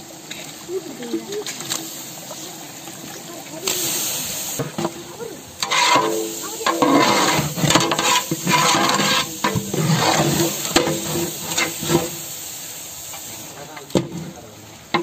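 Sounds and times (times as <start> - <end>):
food sizzling: 0.0 - 15.0
ladle scraping a metal pot: 5.6 - 12.2.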